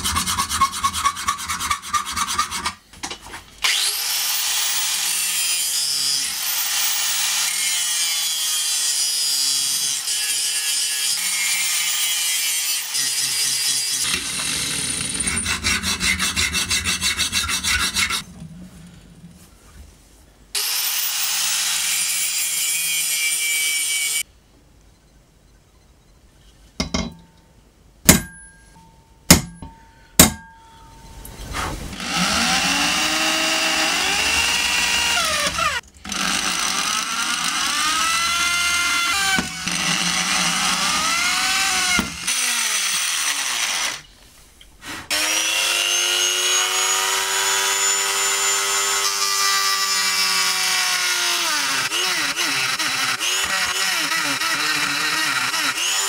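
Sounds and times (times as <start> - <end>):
electric drill boring steel: 3.6 - 18.2, 20.6 - 24.2, 32.0 - 44.1, 45.1 - 56.0.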